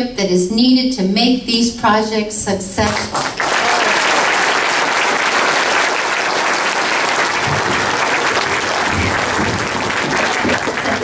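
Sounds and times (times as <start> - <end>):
audience applauding: 2.9 - 11.0
microphone stand bumps and rumbles: 8.6 - 10.9.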